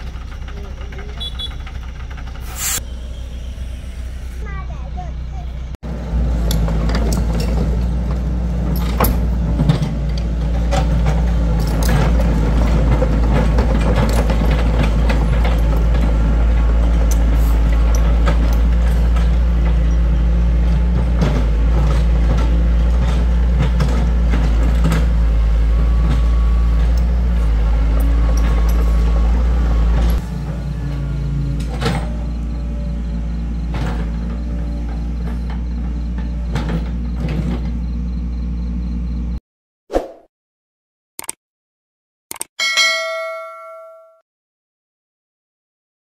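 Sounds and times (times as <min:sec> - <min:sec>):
excavator diesel engine running: 0:00.0 - 0:39.4
machine clanks and knocks: 0:06.4 - 0:25.3.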